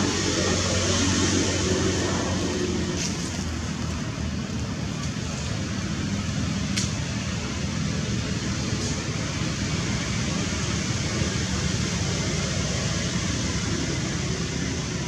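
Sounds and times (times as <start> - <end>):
rushing outdoor background noise: 0.0 - 15.0.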